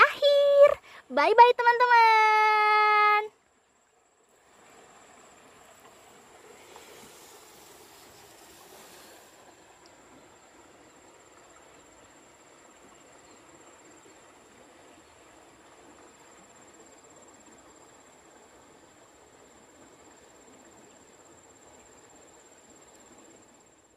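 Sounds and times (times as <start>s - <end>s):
river running over rocks: 4.4s - 13.0s
loud hiss: 6.5s - 9.5s.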